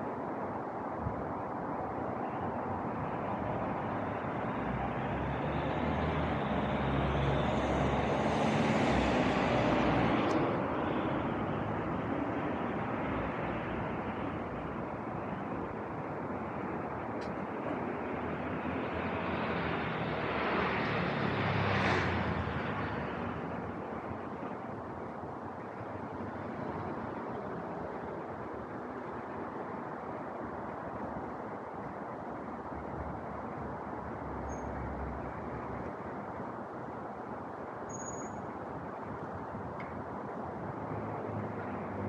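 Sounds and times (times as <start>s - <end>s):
vehicle passing with low rumble: 3.1s - 14.7s, 17.4s - 23.9s
car passing close: 4.0s - 10.6s, 18.2s - 23.6s.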